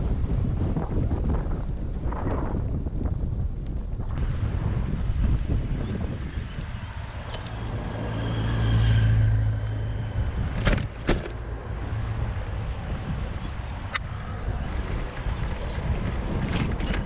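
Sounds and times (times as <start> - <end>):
steady low rumble: 0.0 - 17.0
motor vehicle passing: 4.2 - 17.0.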